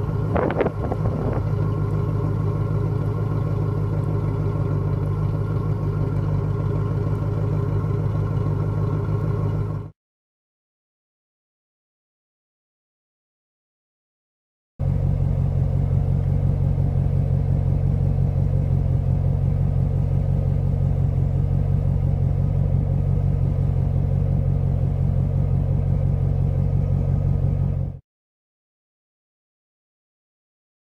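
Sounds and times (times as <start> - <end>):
car engine idling: 0.0 - 9.9, 14.8 - 28.0.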